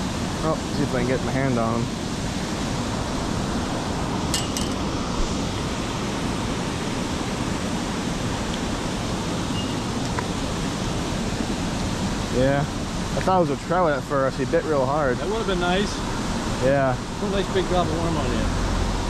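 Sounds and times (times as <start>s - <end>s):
steady rushing noise: 0.0s - 19.0s
light clinks: 4.4s - 4.9s.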